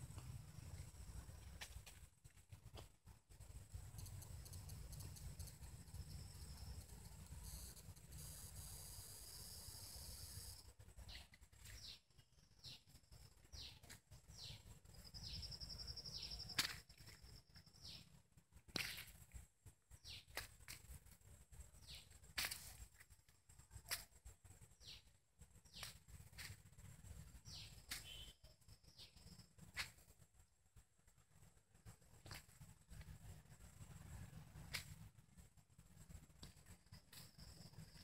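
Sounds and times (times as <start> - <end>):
faint clicks: 3.9 - 8.8
high falling bird chirps: 27.4 - 29.5
rapid bird trill: 27.4 - 29.5.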